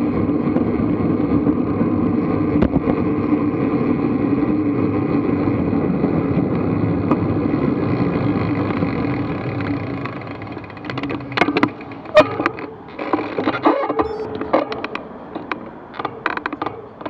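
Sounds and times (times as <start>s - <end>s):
wind on microphone: 0.0s - 15.9s
bicycle tyre noise: 0.0s - 17.0s
sharp clicks and knocks: 10.0s - 17.0s.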